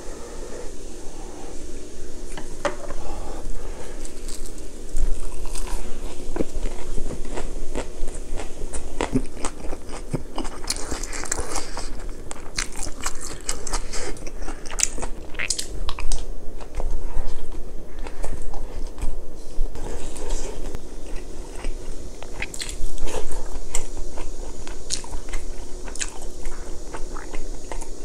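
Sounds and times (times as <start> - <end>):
crunchy chewing: 3.6 - 28.0.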